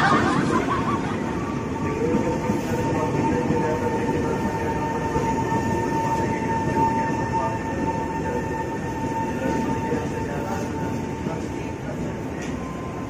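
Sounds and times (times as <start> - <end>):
electric train rumbling: 0.0 - 13.0
train high whine: 0.0 - 13.0.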